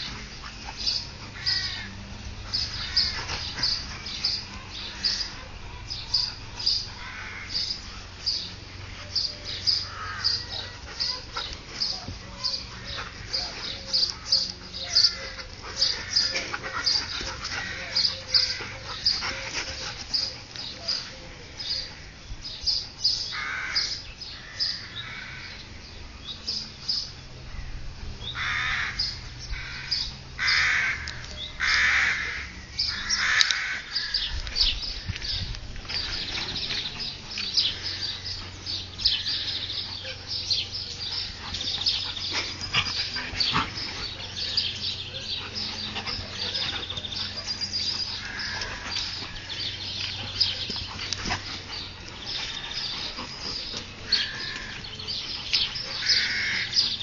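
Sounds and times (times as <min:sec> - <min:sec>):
dogs play growling: 0:00.0 - 0:23.0, 0:26.6 - 0:57.0
dogs yipping: 0:09.7 - 0:21.1, 0:38.3 - 0:57.0.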